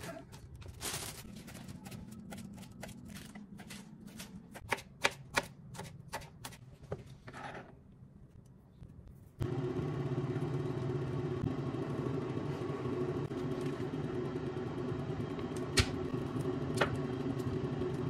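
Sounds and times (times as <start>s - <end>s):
knife chopping on cutting board: 4.5s - 6.6s.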